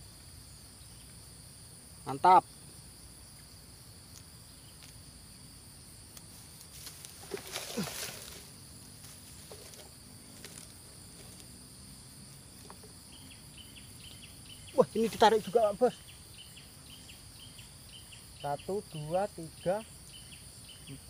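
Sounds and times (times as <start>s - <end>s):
high-pitched insect chorus: 0.0s - 21.0s
rustling and handling noise: 6.3s - 11.5s.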